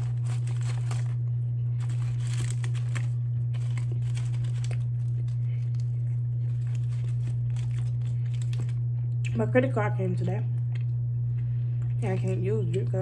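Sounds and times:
paper wrapper crinkling: 0.0s - 9.1s
loud low hum: 0.0s - 13.0s.

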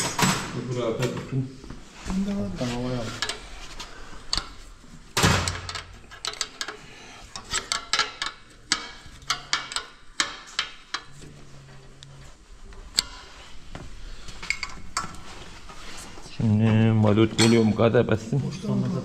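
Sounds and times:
metal tools and parts clinking: 5.2s - 11.2s.

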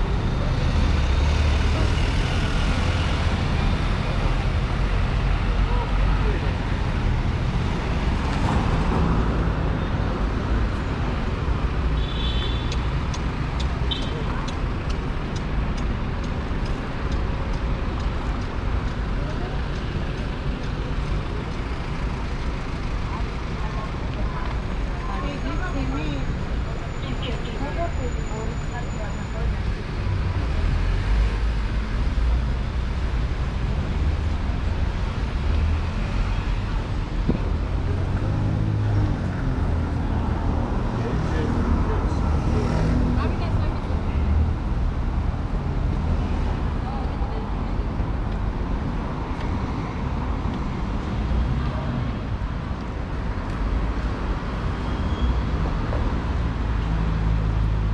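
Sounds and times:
cars driving past: 0.0s - 11.9s, 27.6s - 57.9s
street hubbub: 0.0s - 57.9s.

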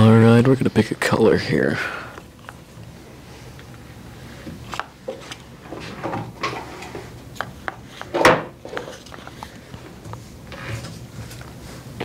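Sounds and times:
cards clicking and rubbing: 8.7s - 11.6s.

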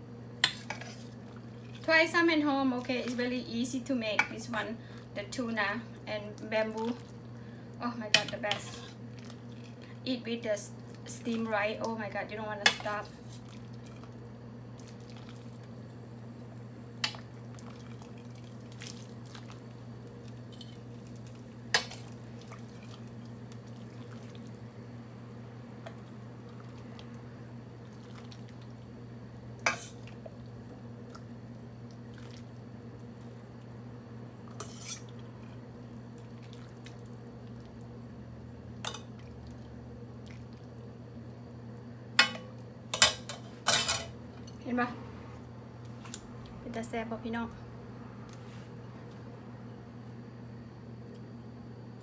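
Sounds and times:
steady low hum: 0.0s - 52.0s.

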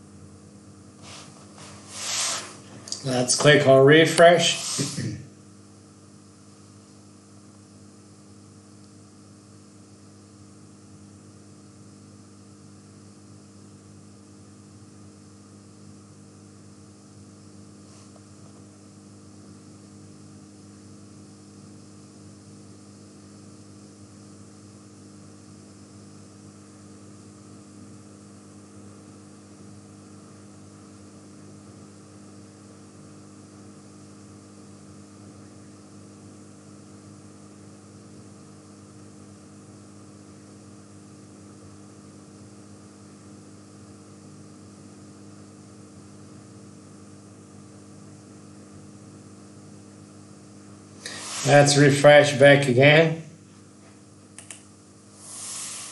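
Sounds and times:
electrical hum: 0.0s - 55.9s
even hiss: 1.0s - 5.3s, 51.0s - 52.7s, 55.1s - 55.9s
faint click: 54.4s - 54.7s.

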